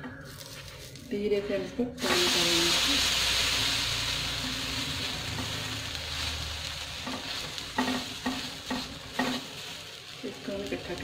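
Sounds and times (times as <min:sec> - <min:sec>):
batter sizzling on hot pan: 0:00.2 - 0:11.0.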